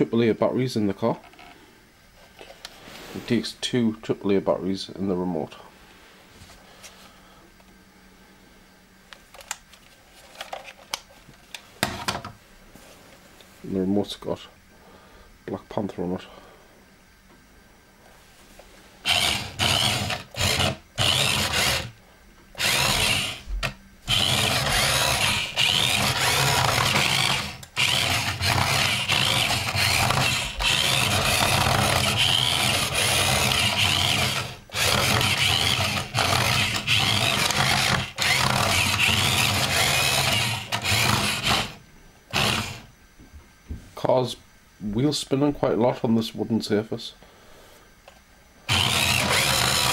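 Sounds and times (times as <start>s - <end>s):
rubber wheels spinning on wood: 19.0s - 22.0s, 22.6s - 42.9s, 48.7s - 49.9s
toy car motor whirring: 19.0s - 22.0s, 22.6s - 42.9s, 48.7s - 49.9s.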